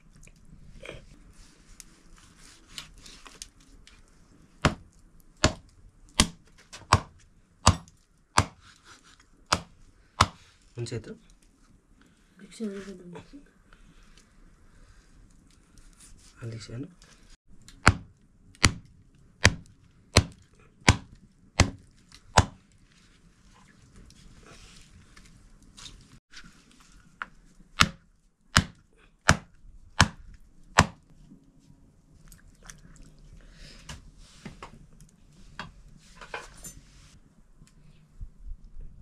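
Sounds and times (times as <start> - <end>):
knife chopping meat on wooden block: 5.4 - 5.6, 6.2 - 8.6, 9.5 - 10.4, 19.4 - 19.6, 20.2 - 21.8, 22.4 - 22.6, 27.8 - 28.0, 28.6 - 30.2.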